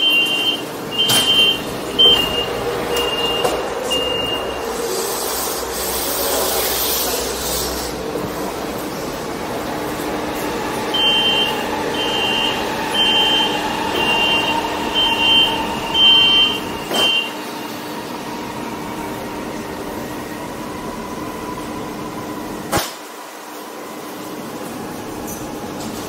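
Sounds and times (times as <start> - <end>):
door-closing warning beeps: 0.0 - 4.7, 10.9 - 17.4
train electrical hum: 0.0 - 26.0.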